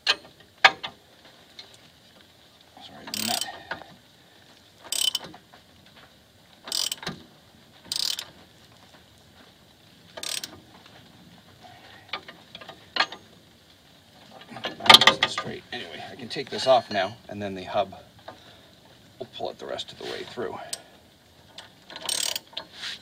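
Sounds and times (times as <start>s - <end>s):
ratchet wrench clicking: 3.1s - 3.5s, 4.9s - 5.2s, 6.7s - 7.1s, 7.9s - 8.3s, 10.2s - 10.6s, 22.0s - 22.5s.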